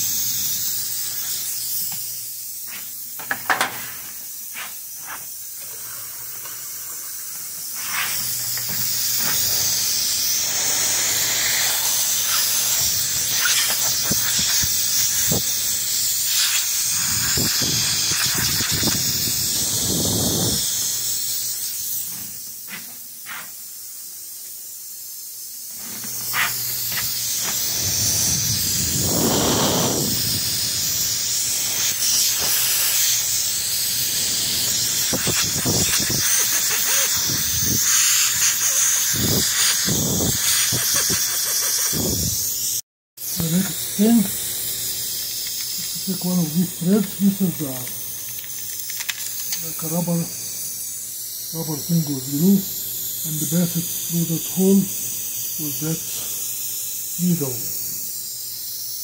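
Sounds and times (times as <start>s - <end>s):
air hissing from tyre: 0.0s - 24.2s, 25.7s - 42.8s.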